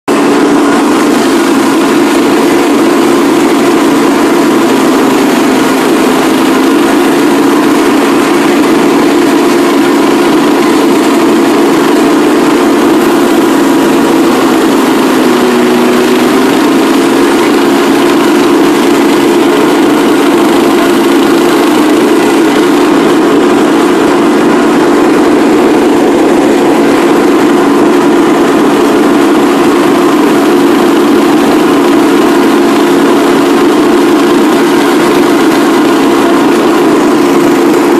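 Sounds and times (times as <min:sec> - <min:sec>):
riding lawn mower engine running: 0:00.0 - 0:37.9.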